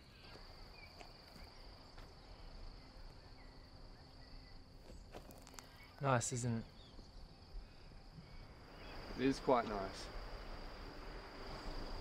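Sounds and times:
high-pitched insect drone: 0:05.3 - 0:12.0.

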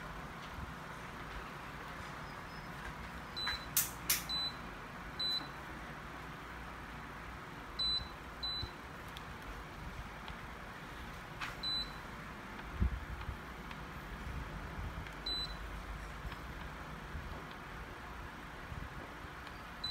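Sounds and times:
sharp clicks: 0:03.4 - 0:04.5.

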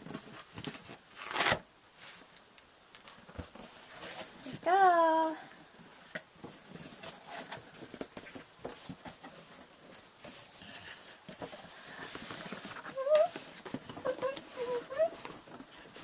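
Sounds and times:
cardboard box rustling and scraping: 0:06.0 - 0:16.0.

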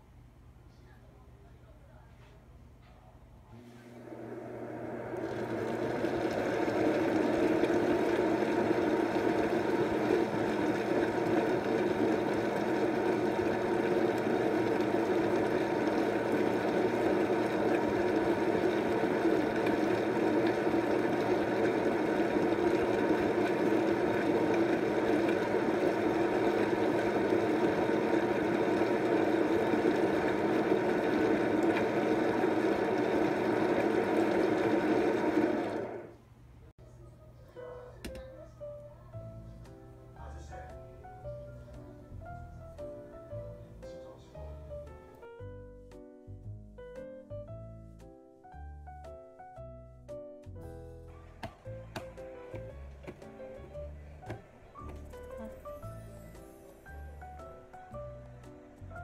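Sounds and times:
food processor motor whirring: 0:03.8 - 0:36.2.

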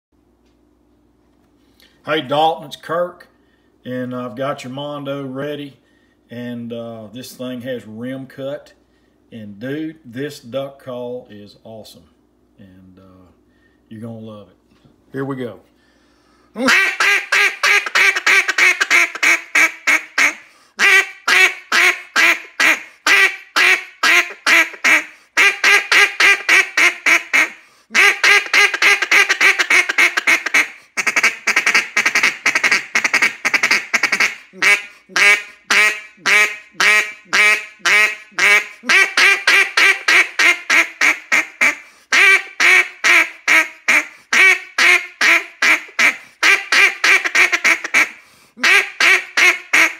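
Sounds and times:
duck call quacks and chatter: 0:16.6 - 0:49.9.

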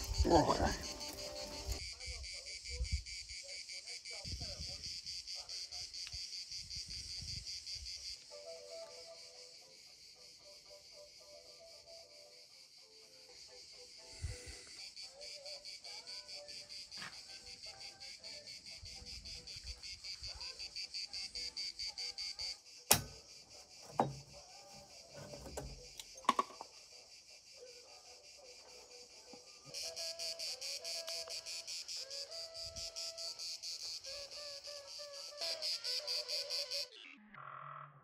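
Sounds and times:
insects trilling: 0:00.0 - 0:38.0
sharp click: 0:22.9 - 0:23.2.

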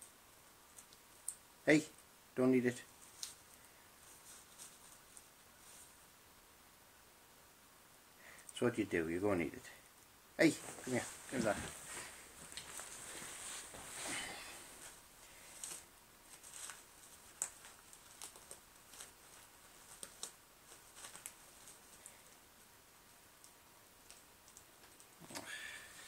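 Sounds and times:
wrapper crinkling: 0:15.5 - 0:22.2.

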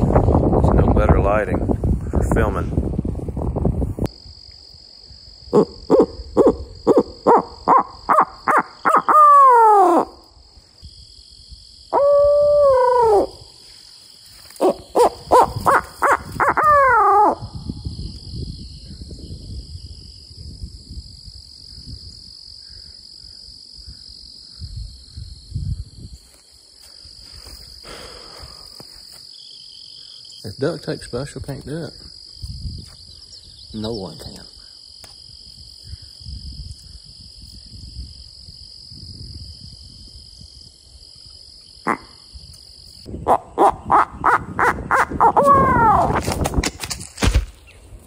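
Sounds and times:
wooden owl hooter hoots: 0:05.5 - 0:10.2, 0:11.9 - 0:13.4, 0:14.6 - 0:17.5, 0:43.2 - 0:46.2.

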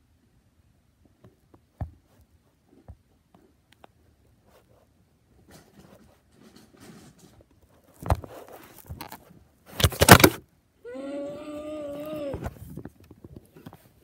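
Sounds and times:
phone handling rustle: 0:07.8 - 0:10.4
phone falling with bumps and scrapes: 0:09.8 - 0:10.4
person crying out: 0:10.8 - 0:12.6.

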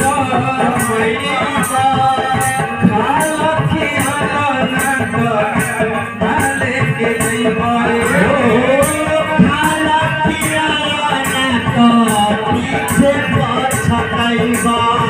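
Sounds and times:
harmonium melody: 0:00.0 - 0:15.0
jingling hand percussion: 0:00.0 - 0:15.0
hand drum playing: 0:07.9 - 0:10.6.

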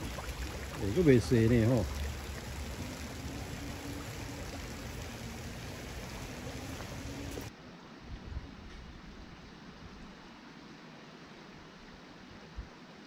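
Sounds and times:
creek water running over stones: 0:00.0 - 0:07.5.

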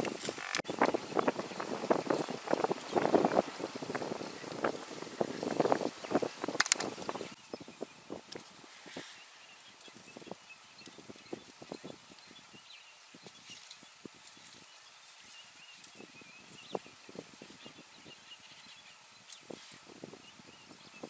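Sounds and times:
branches snapping and rustling: 0:00.0 - 0:01.0, 0:06.2 - 0:07.2.

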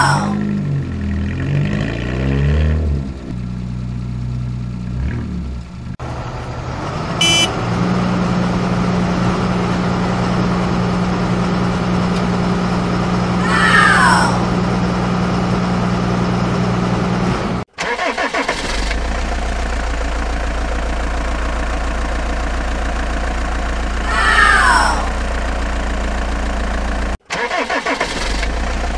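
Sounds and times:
steady engine hum: 0:00.0 - 0:28.9
truck engine revving: 0:00.0 - 0:28.9
brief high beep: 0:07.2 - 0:07.5.

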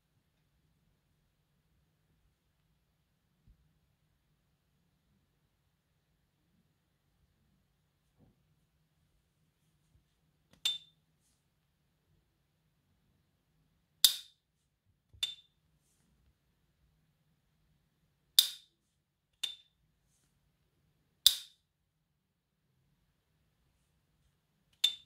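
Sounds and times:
metallic lighter lid pings: 0:10.6 - 0:10.9.

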